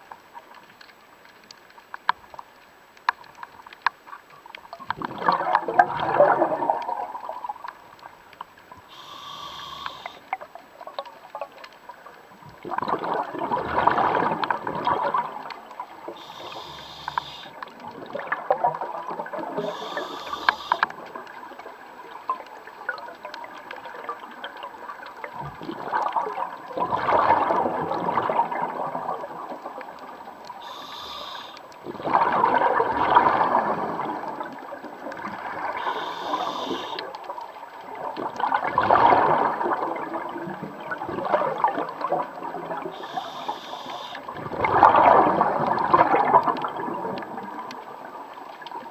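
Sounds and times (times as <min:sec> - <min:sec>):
exhaled bubbles rushing underwater: 0:04.4 - 0:08.2, 0:08.9 - 0:48.9
regulator hissing inhalations: 0:08.9 - 0:10.2, 0:16.2 - 0:17.6, 0:19.6 - 0:20.8, 0:30.6 - 0:31.7, 0:35.8 - 0:37.0, 0:43.0 - 0:44.2.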